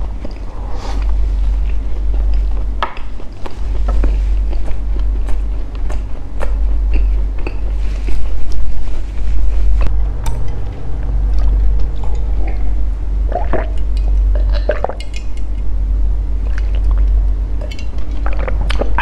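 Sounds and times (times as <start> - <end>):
close chewing: 0.0 - 12.6
steady low hum: 0.0 - 19.0.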